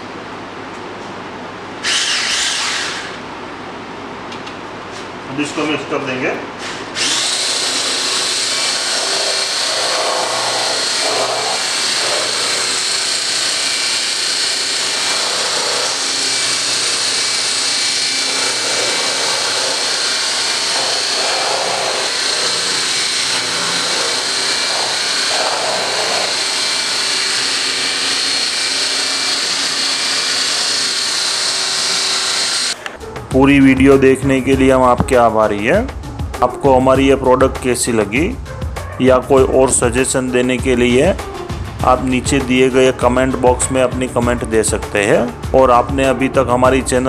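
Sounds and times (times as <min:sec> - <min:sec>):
immersion blender motor whine: 0:01.8 - 0:03.2, 0:07.0 - 0:32.8.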